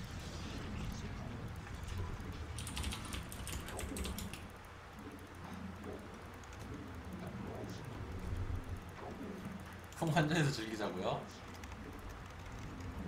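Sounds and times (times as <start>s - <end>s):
typing on computer keyboard: 2.6s - 4.5s.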